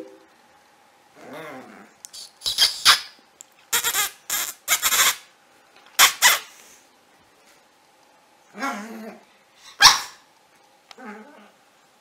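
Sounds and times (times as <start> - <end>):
puppy yapping: 9.8 - 10.2.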